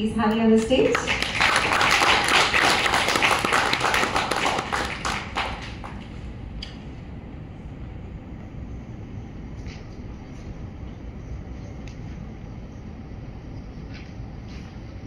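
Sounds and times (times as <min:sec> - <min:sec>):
audience applauding: 0:00.8 - 0:06.2.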